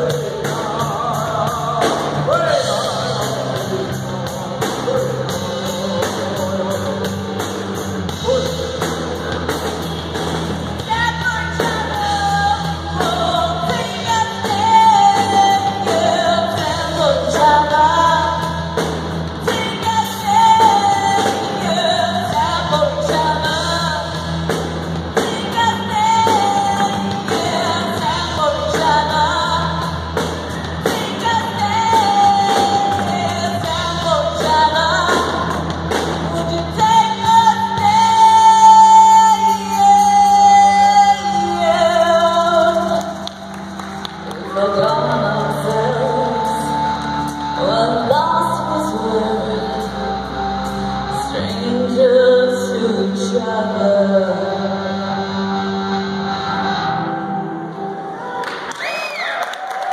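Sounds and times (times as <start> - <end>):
person singing: 0.0 - 9.7, 10.8 - 18.8, 36.2 - 43.3, 44.3 - 55.6
live rock music: 0.0 - 58.8.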